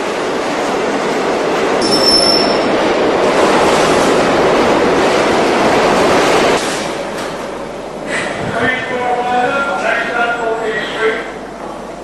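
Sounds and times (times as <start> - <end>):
subway train wheels rumbling: 0.0 - 12.0
high wheel squeal: 1.8 - 2.8.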